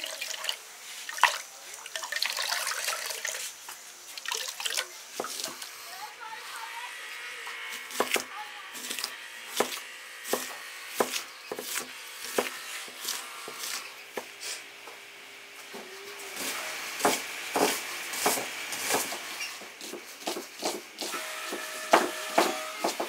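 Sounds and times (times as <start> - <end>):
knife chopping on wooden board: 7.9 - 14.3, 16.4 - 19.2, 19.8 - 23.0.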